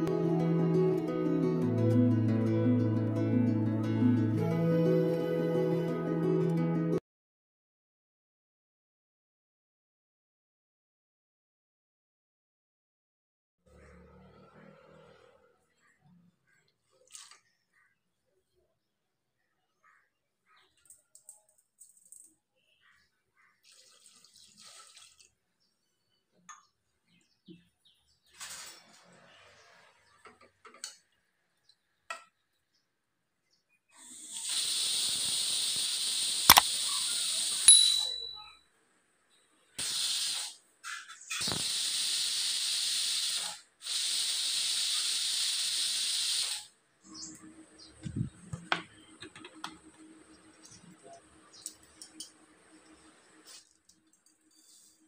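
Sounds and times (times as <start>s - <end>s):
pressure cooker steam whistling: 34.1s - 38.5s, 39.8s - 46.7s.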